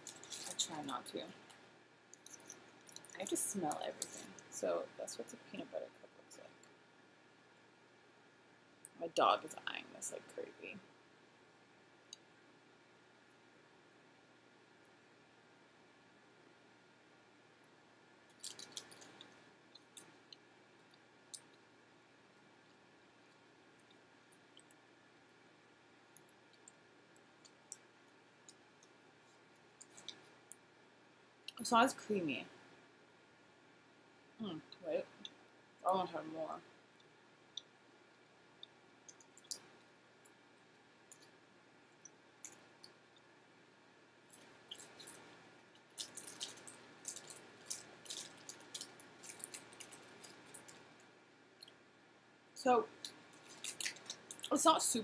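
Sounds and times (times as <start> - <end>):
faint chewing clicks: 1.4 - 4.5, 18.3 - 21.7, 26.1 - 30.7, 36.9 - 43.3, 44.2 - 51.8, 52.9 - 54.5.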